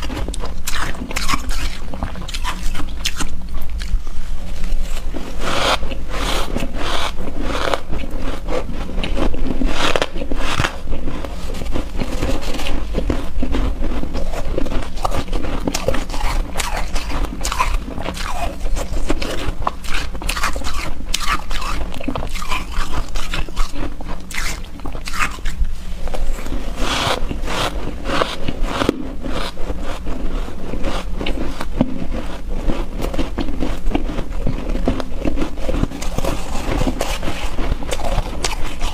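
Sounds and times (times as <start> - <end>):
chewing shaved ice: 0.0 - 38.9.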